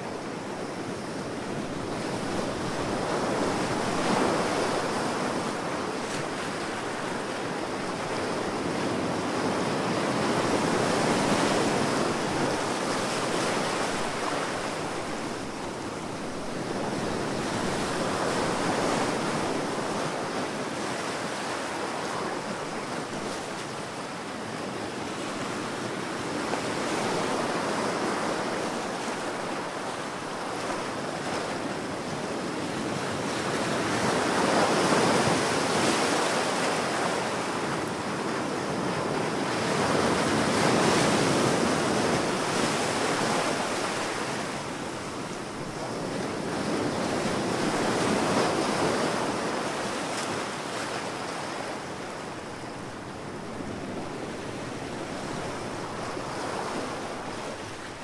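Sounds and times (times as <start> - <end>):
ocean surf breaking: 33.1 - 58.0.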